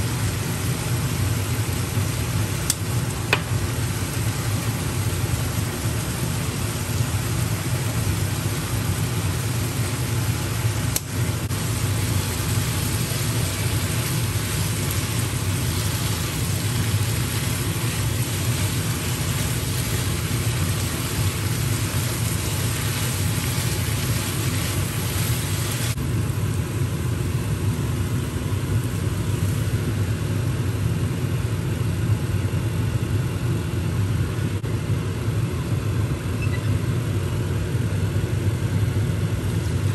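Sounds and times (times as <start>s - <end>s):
meat sizzling in a pan: 0.0s - 26.0s
low mechanical hum: 0.0s - 39.9s.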